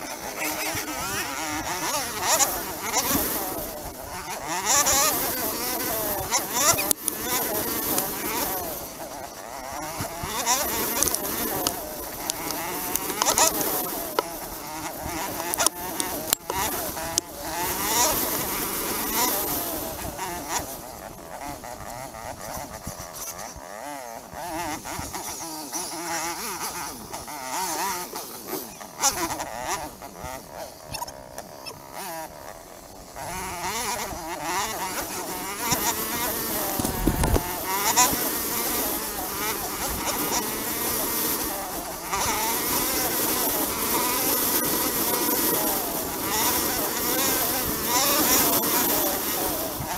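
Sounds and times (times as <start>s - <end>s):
dirt bike engine revving: 0.0s - 49.9s.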